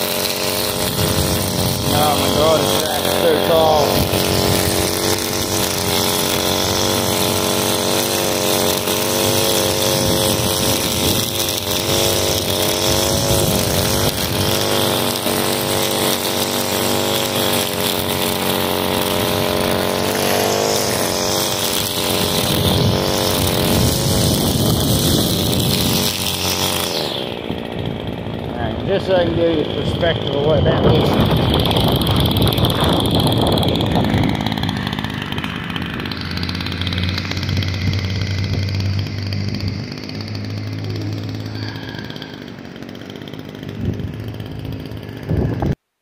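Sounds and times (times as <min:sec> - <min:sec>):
string trimmer cutting grass: 0:00.0 - 0:46.0.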